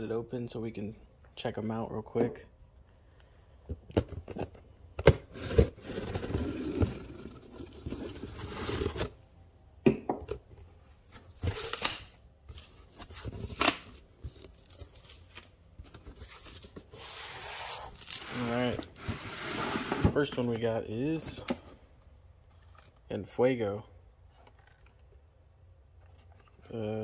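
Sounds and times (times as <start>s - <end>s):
cardboard box being cut and torn: 5.2s - 9.2s, 11.2s - 15.2s
packaging crinkling and scraping: 5.2s - 9.2s, 11.0s - 20.6s.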